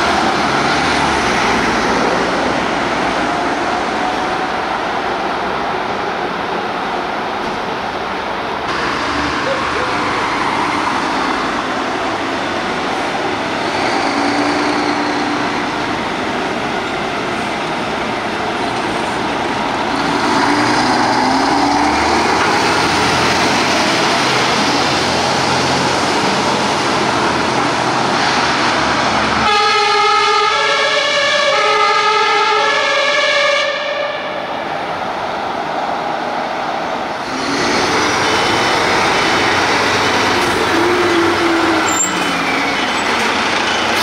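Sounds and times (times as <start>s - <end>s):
fire engine diesel engine: 0.0s - 44.0s
two-tone siren: 29.4s - 34.5s.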